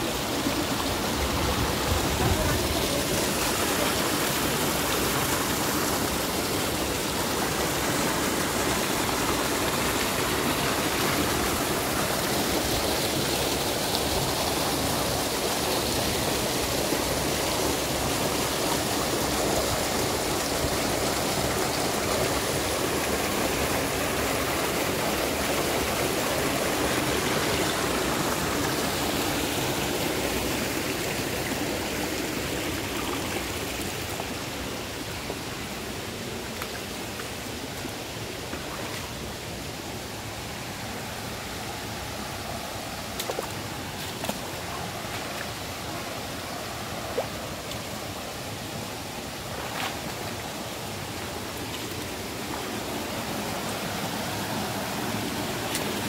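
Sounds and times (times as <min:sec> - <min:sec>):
waterfall rushing water: 0:00.0 - 0:56.0.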